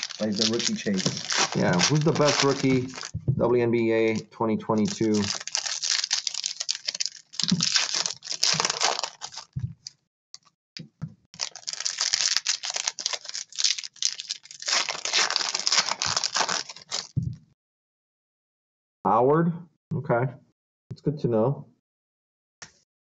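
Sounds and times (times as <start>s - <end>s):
foil wrapper crinkling: 0.0s - 3.1s, 4.1s - 9.9s, 11.4s - 17.2s.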